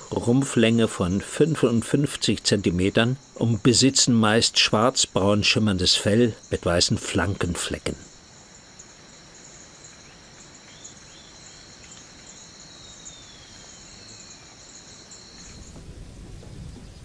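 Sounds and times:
high-pitched insect chorus: 0.0 - 17.0
faint chirps: 8.8 - 17.0.

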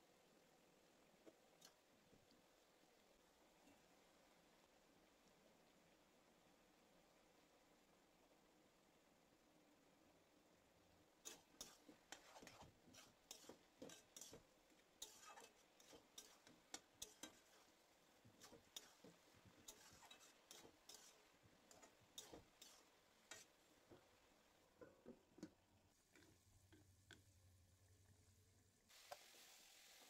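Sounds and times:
metal spatula scraping pan: 11.2 - 23.6.

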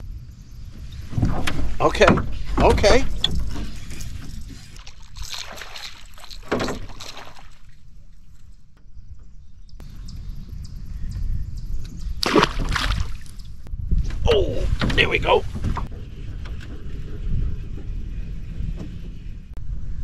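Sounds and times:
steady low rumble: 0.0 - 4.9, 7.7 - 20.0
fish splashing in water: 4.7 - 7.9, 12.2 - 13.4.

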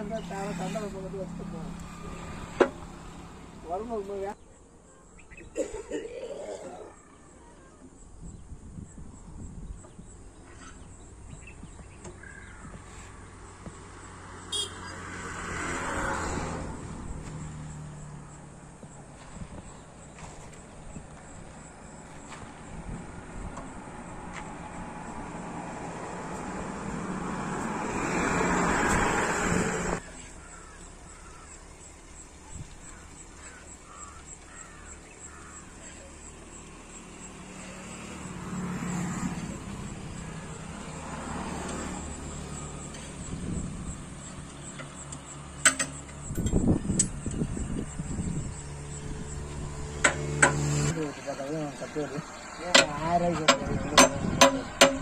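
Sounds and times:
diesel engine running: 0.0 - 4.2, 35.2 - 55.0
vehicle engine: 0.0 - 4.4, 10.4 - 55.0
sharp metallic clanks: 44.7 - 47.4, 50.0 - 50.9, 52.7 - 55.0.

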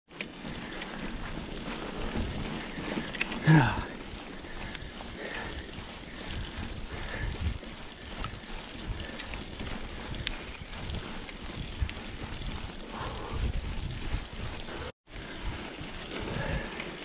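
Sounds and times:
bike clicks and rattles: 0.1 - 17.0
tyres running over dirt: 0.1 - 17.0
wind buffeting microphone: 0.4 - 16.8.

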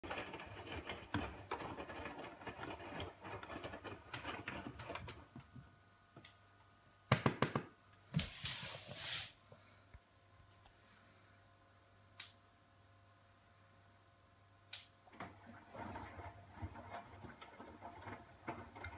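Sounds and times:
washing machine drum tumbling laundry: 15.1 - 18.9.

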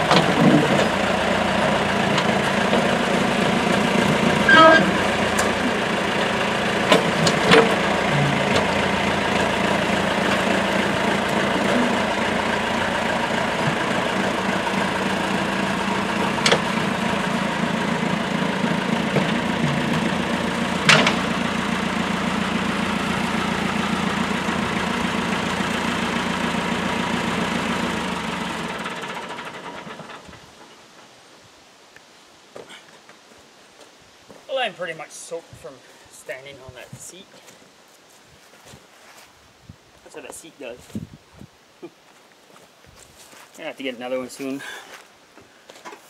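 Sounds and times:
tractor engine running: 0.0 - 31.2
metallic clanks: 20.8 - 21.4.

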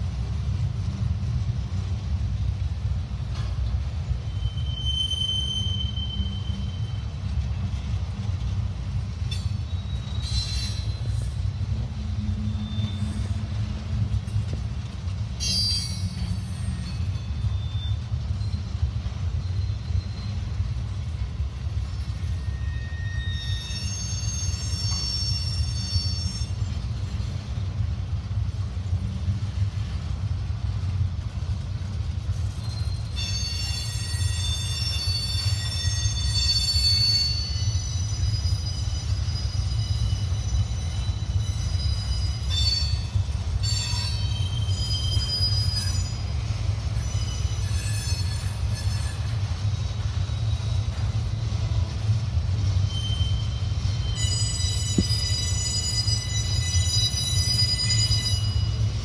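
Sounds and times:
freight train wheels rumbling: 0.0 - 59.0
wheel squeal: 4.2 - 7.0, 9.3 - 11.4, 12.2 - 13.6, 15.4 - 18.8, 19.4 - 20.5, 21.8 - 27.2, 32.4 - 52.0, 52.6 - 59.0.

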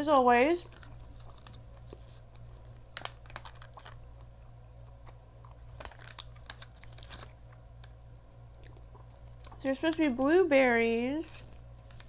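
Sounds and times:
low steady hum: 0.0 - 12.0
chewing dried fruit: 0.6 - 10.2.

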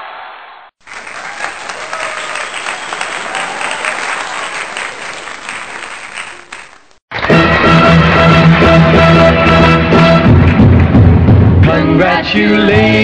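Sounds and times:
crowd applauding: 0.8 - 9.2
voices: 0.9 - 7.0.

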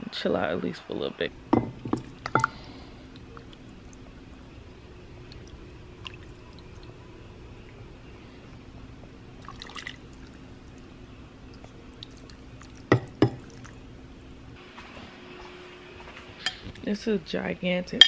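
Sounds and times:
steady low hum: 0.0 - 18.0
ladle knocking against dishes: 1.5 - 2.5
soup pouring into bowl: 9.4 - 10.8
wet splashes and drips: 9.4 - 10.8.

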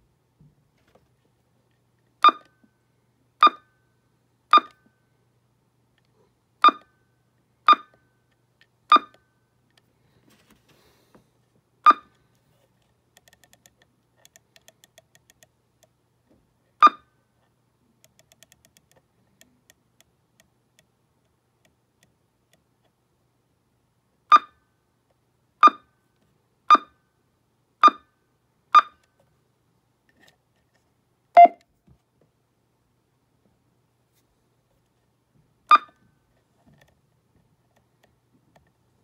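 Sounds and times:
short high button beeps: 31.4 - 31.6, 35.7 - 36.0.

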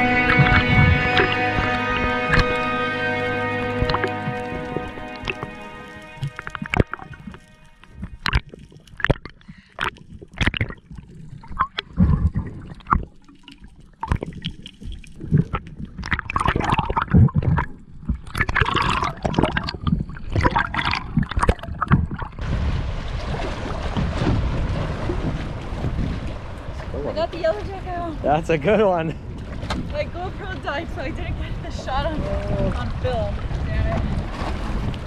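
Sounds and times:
rushing wind and water: 0.0 - 35.0
water gurgling and splashing: 0.0 - 35.0.

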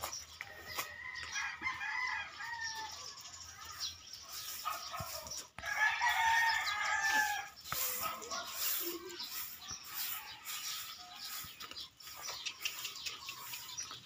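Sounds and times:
rooster crowing: 0.9 - 3.0, 5.6 - 7.9.

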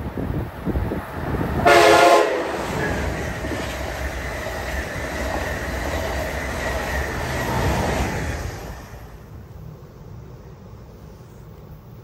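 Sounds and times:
train rumbling past: 0.0 - 12.0
train horn blast: 1.6 - 2.9.

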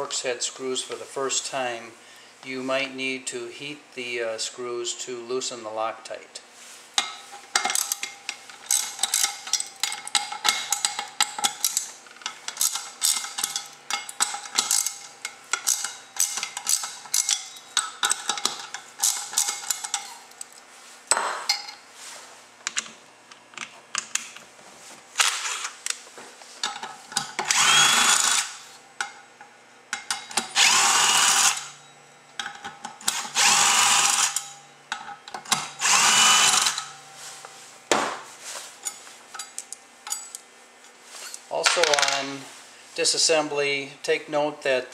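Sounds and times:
power driver whining: 27.4 - 28.6, 30.4 - 31.8, 33.1 - 34.6, 35.6 - 37.0.

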